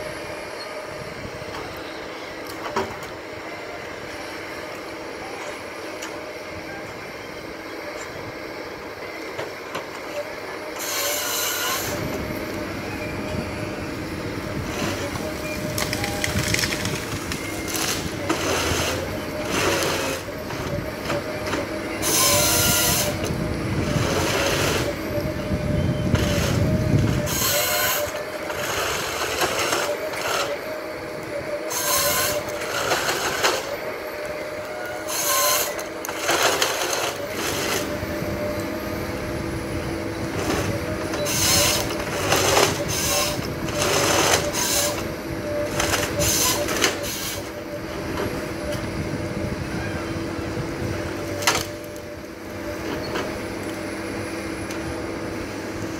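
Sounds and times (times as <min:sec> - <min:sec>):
harvester engine and hydraulics whine: 0:00.0 - 0:55.9
chain saw cutting wood: 0:10.8 - 0:12.2, 0:16.1 - 0:20.3, 0:26.2 - 0:30.6, 0:31.7 - 0:33.8, 0:35.0 - 0:38.0, 0:40.3 - 0:47.5
feed rollers rattling and rumbling: 0:14.3 - 0:30.5, 0:39.1 - 0:53.9.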